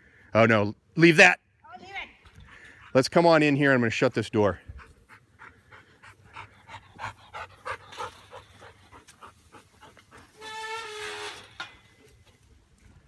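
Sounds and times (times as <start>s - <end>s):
dog panting: 4.6s - 10.4s.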